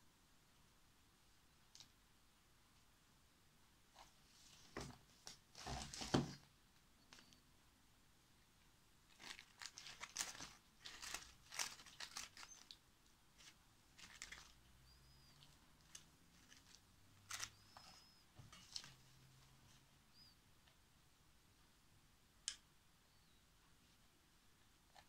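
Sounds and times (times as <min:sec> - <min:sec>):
dry leaves and paper rustling: 0:09.1 - 0:12.8, 0:13.4 - 0:14.6, 0:15.4 - 0:17.6.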